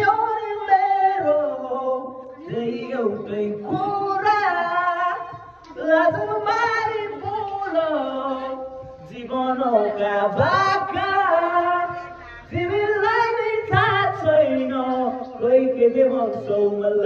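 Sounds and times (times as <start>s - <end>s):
young man singing unaccompanied: 0.0s - 17.0s
singer breathing: 11.9s - 12.6s.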